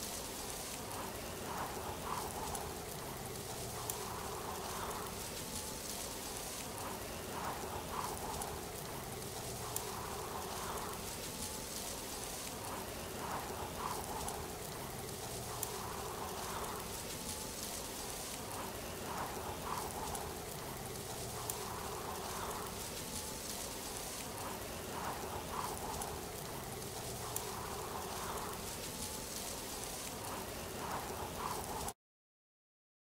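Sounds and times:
falling water hiss: 0:00.0 - 0:32.0.

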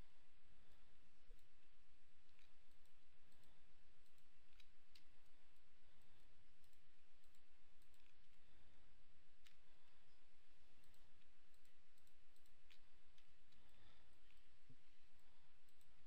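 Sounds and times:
computer mouse and keyboard clicks: 0:00.7 - 0:16.0.

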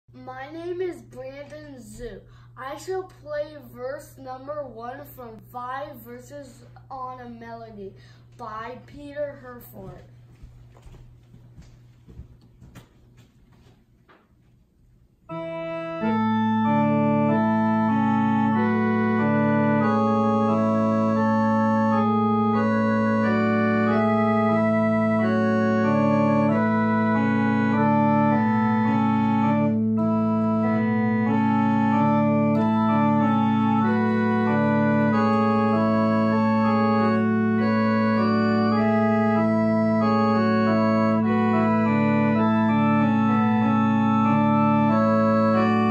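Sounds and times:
electronic organ playing slow piece: 0:15.2 - 0:45.9.

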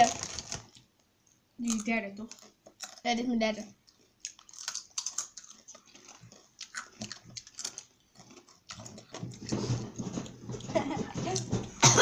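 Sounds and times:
tortilla chips being chewed: 0:01.6 - 0:03.1, 0:03.8 - 0:10.4.

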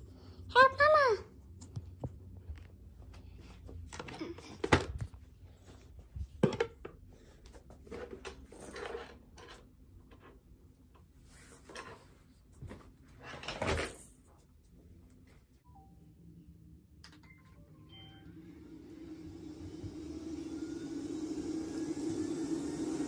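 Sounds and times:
objects knocking and thudding: 0:03.9 - 0:05.3, 0:06.1 - 0:07.1.

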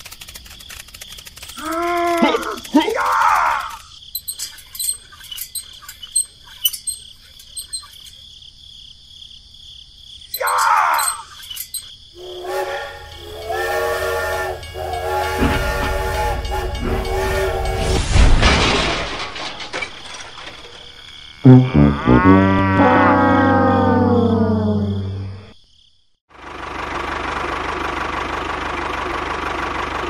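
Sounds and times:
short squeal: 0:04.2 - 0:08.1, 0:10.3 - 0:25.5
toy train electronic whistle: 0:12.2 - 0:18.0.

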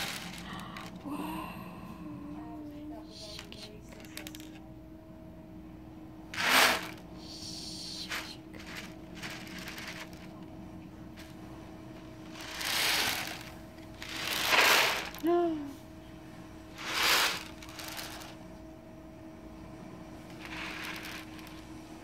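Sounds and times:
beads rolling in ocean drum: 0:00.0 - 0:01.0, 0:06.3 - 0:07.1, 0:08.1 - 0:10.5, 0:12.0 - 0:15.3, 0:16.7 - 0:18.4, 0:20.2 - 0:22.0.

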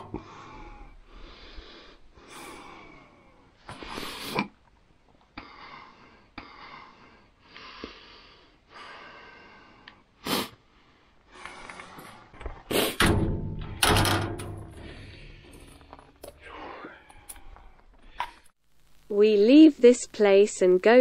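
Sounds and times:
person breathing heavily: 0:00.0 - 0:04.5, 0:05.3 - 0:13.0, 0:14.8 - 0:18.6.

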